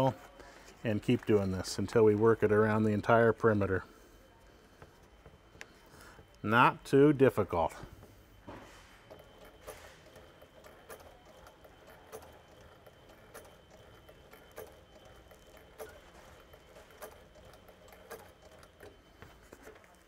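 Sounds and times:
sewing machine stitching: 0:09.0 - 0:20.0.

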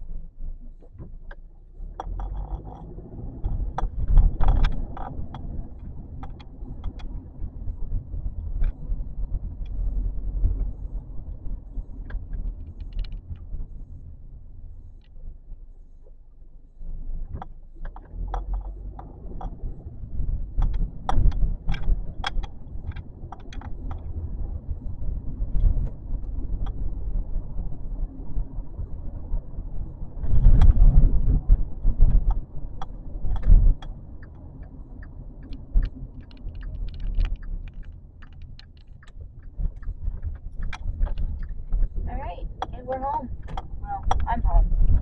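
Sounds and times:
car engine and road rumble: 0:00.0 - 0:45.0
heavier rumble: 0:00.0 - 0:45.0
small rattles and clicks: 0:00.7 - 0:13.9, 0:17.2 - 0:24.2, 0:30.2 - 0:45.0.

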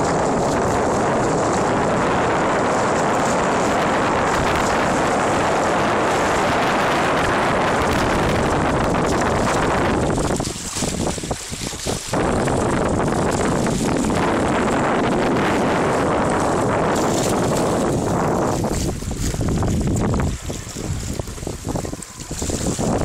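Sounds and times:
water rushing along hull: 0:00.0 - 0:23.0
wind buffeting microphone: 0:00.0 - 0:23.0.

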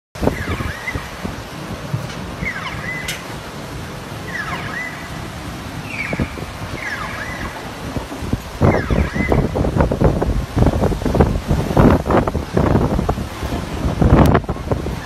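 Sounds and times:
floodwater rushing and sloshing: 0:00.2 - 0:15.0
electronic alarm chirping: 0:02.4 - 0:03.2, 0:04.2 - 0:05.2, 0:05.8 - 0:07.7, 0:08.6 - 0:09.6.

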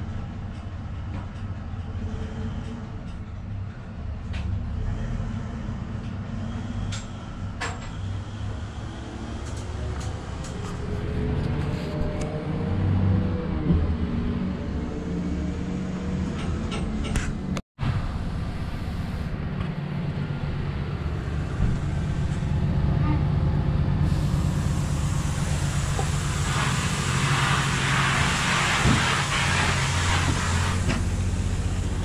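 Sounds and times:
diesel engine droning: 0:00.0 - 0:32.0
hiss: 0:24.0 - 0:32.0.

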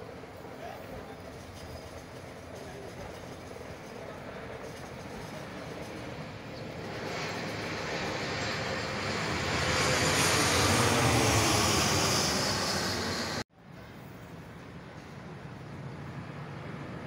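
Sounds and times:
jet airliner passing overhead: 0:00.0 - 0:13.5
high jet engine whine: 0:00.0 - 0:17.0.

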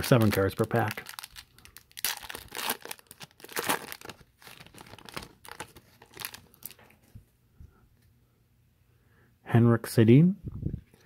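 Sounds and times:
foil wrapper crinkling and tearing: 0:00.0 - 0:06.8.

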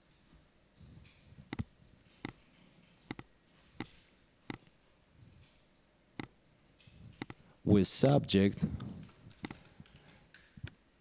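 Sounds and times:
computer mouse clicks: 0:01.5 - 0:02.4, 0:03.1 - 0:04.8, 0:05.5 - 0:07.4, 0:09.0 - 0:10.8.

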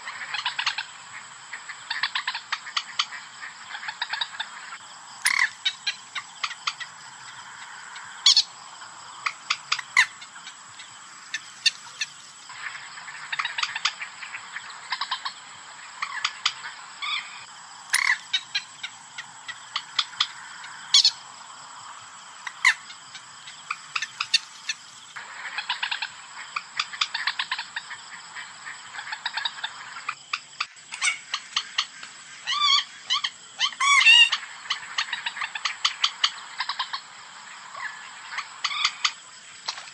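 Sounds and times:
moorhen calls: 0:03.7 - 0:12.4, 0:17.0 - 0:26.0
background hiss: 0:04.5 - 0:39.9.

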